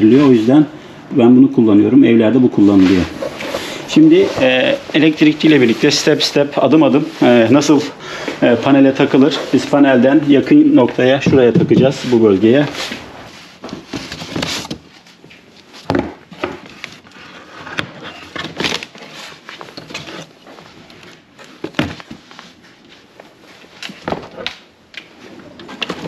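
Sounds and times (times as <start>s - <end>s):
cardboard packaging rustling: 2.8s - 7.8s, 11.8s - 24.6s.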